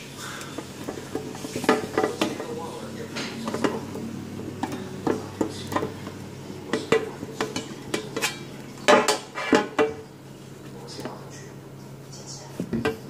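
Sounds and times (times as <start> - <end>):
knife scraping a metal pan: 7.4 - 9.9.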